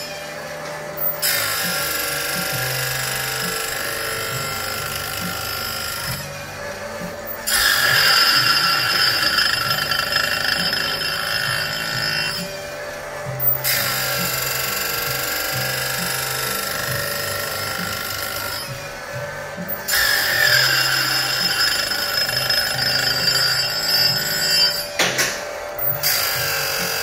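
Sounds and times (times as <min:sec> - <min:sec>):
grinder wheel grinding chain teeth: 0:00.0 - 0:27.0.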